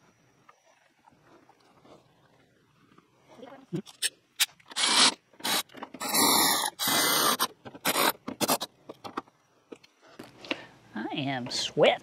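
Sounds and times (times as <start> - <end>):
electric ratchet bursts: 4.7 - 8.7.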